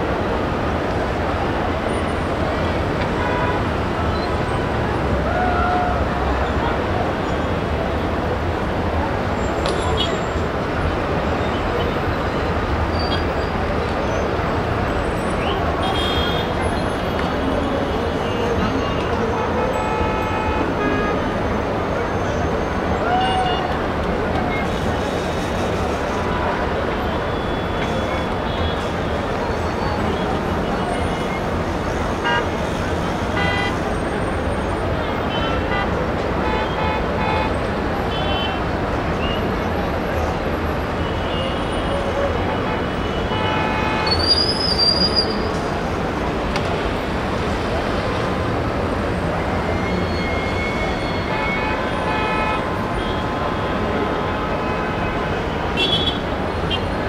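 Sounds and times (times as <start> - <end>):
heavy city traffic: 0.0 - 57.0
car horns: 18.3 - 21.4, 32.1 - 32.7, 33.3 - 34.0, 35.1 - 38.7, 41.0 - 45.3, 49.8 - 56.8.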